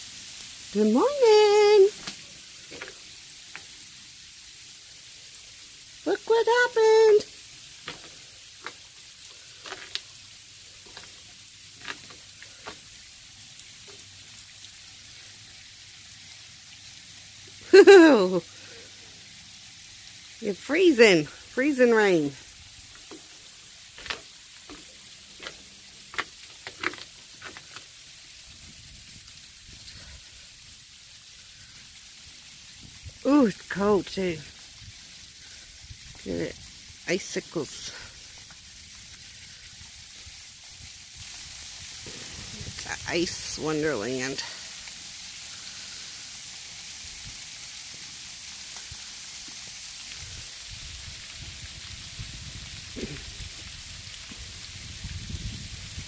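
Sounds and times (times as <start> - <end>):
freezing rain hiss: 0.0 - 56.0
ice drops ticking on surfaces: 0.2 - 50.4, 51.0 - 55.7
wind rumble on microphone: 28.5 - 30.2, 40.8 - 42.9, 50.2 - 56.0.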